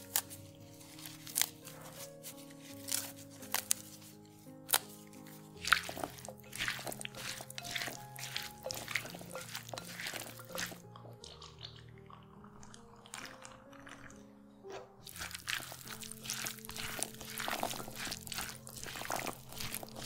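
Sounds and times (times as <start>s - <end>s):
background music: 0.0s - 20.0s
spatula scraping glass bowl: 5.5s - 11.3s, 15.0s - 20.0s.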